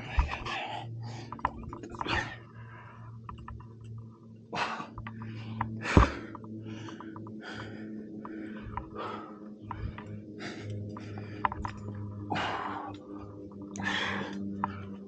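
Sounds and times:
person breathing hard in puffs: 0.0 - 3.4, 4.5 - 15.0
steady low hum: 0.0 - 15.0.

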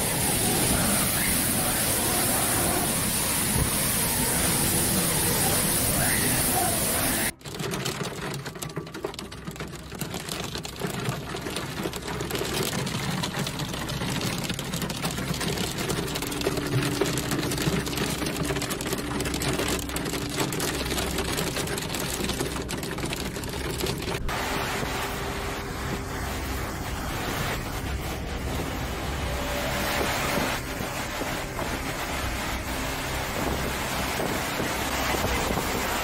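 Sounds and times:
hail clattering on a car: 0.1 - 24.3.

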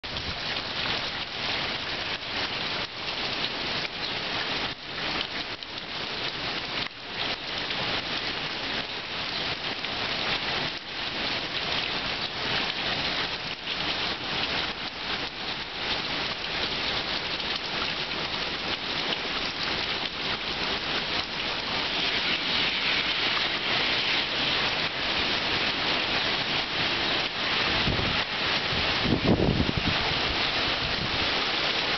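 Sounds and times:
heavy rain pouring: 0.0 - 31.9.

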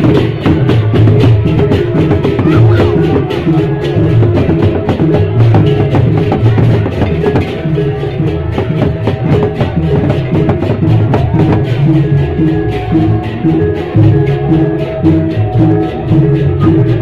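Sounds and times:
rapid dense drumming: 0.0 - 17.0.

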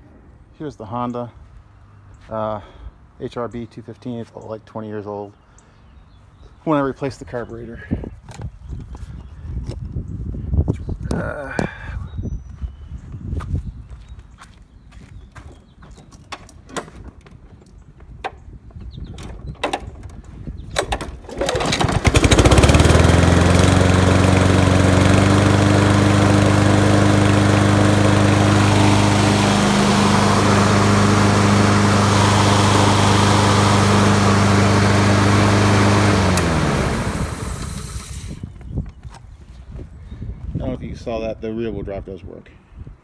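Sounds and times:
lawn mower engine running: 20.8 - 38.4.

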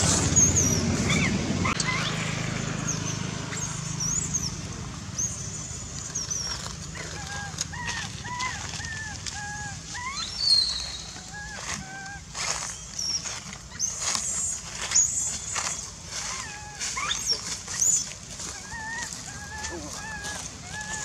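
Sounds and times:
baby monkey crying: 0.0 - 2.2, 6.2 - 21.0
sharp rustling: 5.9 - 21.0
high chirps: 7.2 - 21.0.

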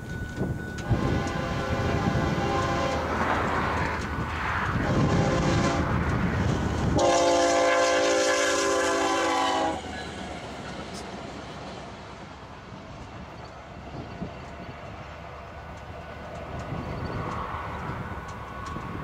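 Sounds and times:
train wheels rushing on rails: 0.0 - 19.0
locomotive horn chord: 0.8 - 3.6, 4.8 - 6.1, 6.9 - 10.0.

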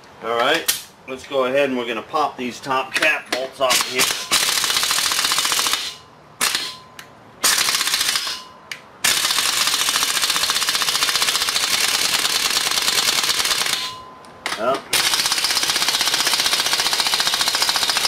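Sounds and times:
pneumatic impact wrench hammering: 3.8 - 6.8, 7.4 - 14.0, 14.9 - 18.0.

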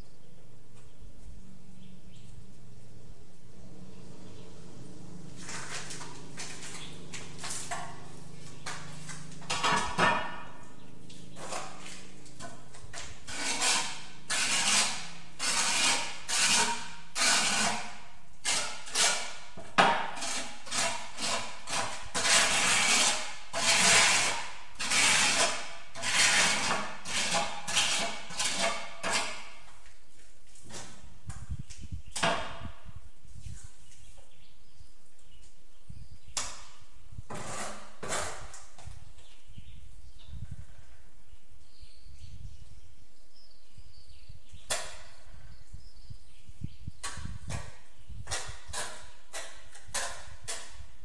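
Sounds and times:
hand tool scraping mortar: 5.3 - 29.9, 37.3 - 38.9, 47.0 - 51.0.

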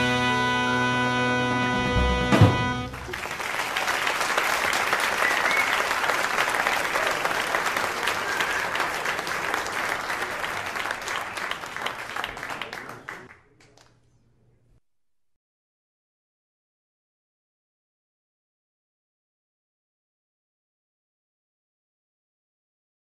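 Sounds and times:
audience applauding: 2.9 - 13.8.

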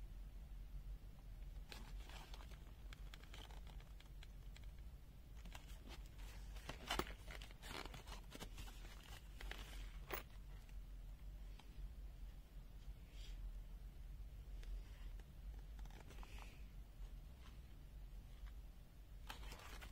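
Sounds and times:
packaging rustling: 5.4 - 10.3, 19.3 - 19.9.

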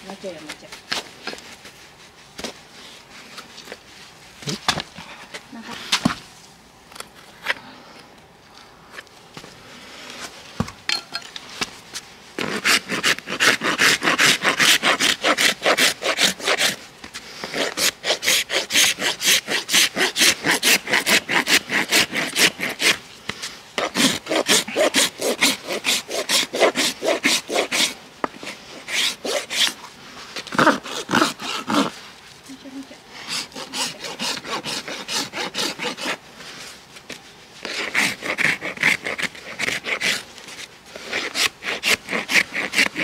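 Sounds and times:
hoof rasp scraping hoof: 10.0 - 32.3, 33.2 - 43.0.

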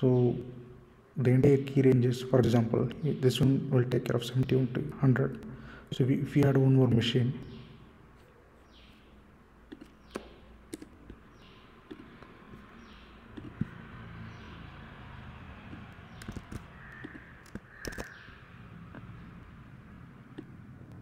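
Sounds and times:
computer mouse clicks: 9.7 - 11.2, 11.8 - 12.6, 13.3 - 13.7, 15.7 - 18.3, 20.3 - 21.0.

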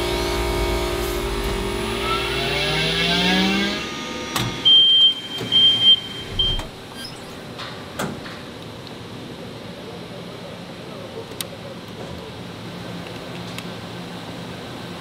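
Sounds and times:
air compressor motor hum rising: 0.0 - 7.6
high-pitched electronic beeps: 2.0 - 3.9, 4.6 - 6.7.

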